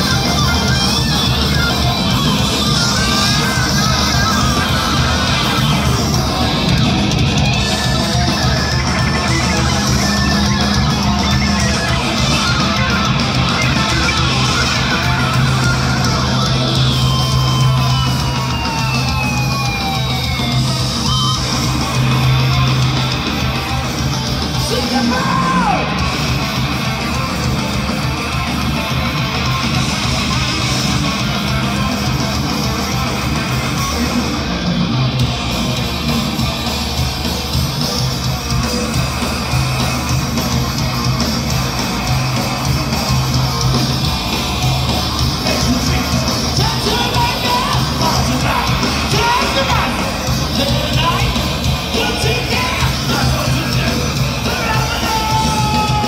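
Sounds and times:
bass guitar: 0.0 - 56.0
distorted electric guitars: 0.0 - 56.0
drums: 0.0 - 56.0
shouted vocals: 24.6 - 26.1, 45.4 - 56.0.

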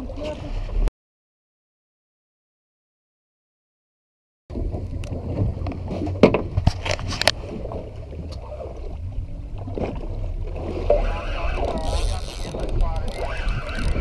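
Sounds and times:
wind rumbling on microphone: 4.5 - 14.0.

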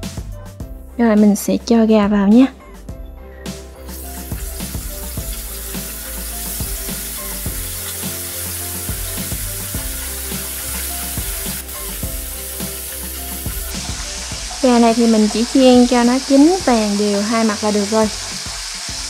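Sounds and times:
chicken wings sizzling in hot oil: 3.8 - 19.0.

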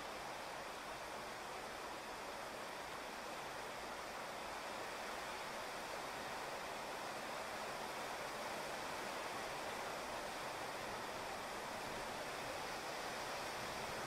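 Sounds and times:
steady rain on asphalt: 0.0 - 14.0.

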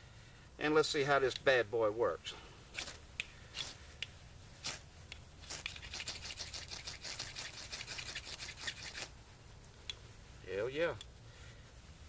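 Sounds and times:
ferro rod scraping: 5.4 - 9.2.

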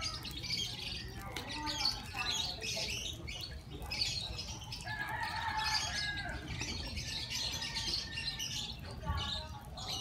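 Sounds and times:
birds chirping: 0.0 - 10.0.

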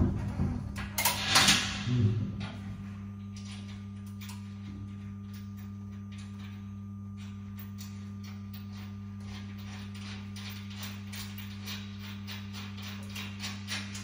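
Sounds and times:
steady low hum: 0.0 - 14.0
metal tools clanking and scraping: 0.8 - 2.0.

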